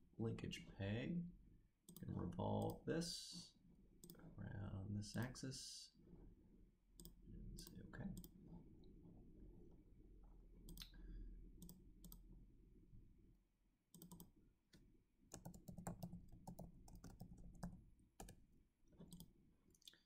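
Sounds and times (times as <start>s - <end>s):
computer mouse clicks: 1.9s - 2.8s, 7.0s - 8.4s, 10.6s - 11.0s, 11.6s - 12.3s, 13.9s - 14.3s, 15.3s - 18.4s, 19.0s - 20.0s
keyboard keystrokes: 14.0s - 14.3s, 15.3s - 18.4s.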